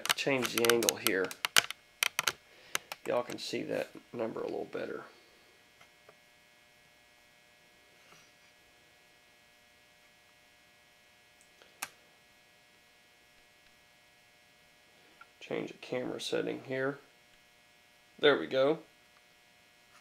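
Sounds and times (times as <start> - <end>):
sharp click: 0.0 - 3.4
faint steady hum: 0.0 - 20.0.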